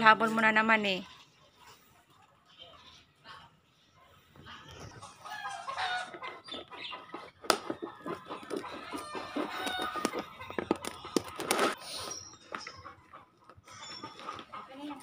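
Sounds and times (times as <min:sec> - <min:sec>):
fowl clucking: 0:05.0 - 0:12.0, 0:12.6 - 0:15.0.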